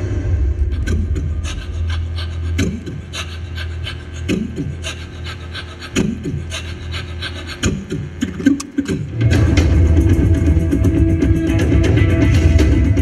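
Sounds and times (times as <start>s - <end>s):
steady low drone: 0.0s - 13.0s
quick clicks: 8.2s - 9.0s.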